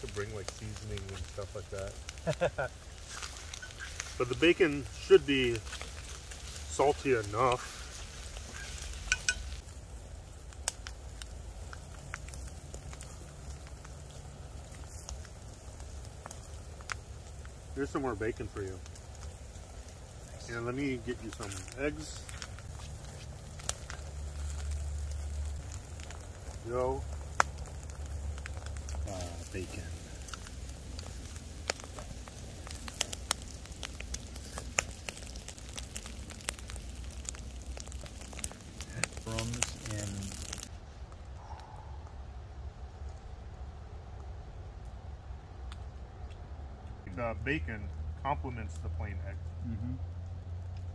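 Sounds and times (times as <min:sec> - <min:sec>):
steady low rumble: 0:00.0 - 0:50.9
wood fire crackling and popping: 0:00.0 - 0:50.9.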